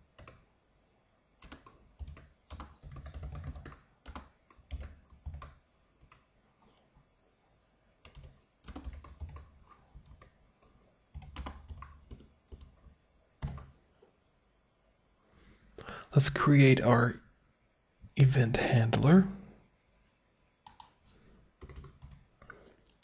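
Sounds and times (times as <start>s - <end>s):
computer keyboard typing: 0.0s - 0.5s, 1.4s - 6.9s, 8.0s - 13.8s, 20.6s - 21.0s, 21.6s - 22.3s.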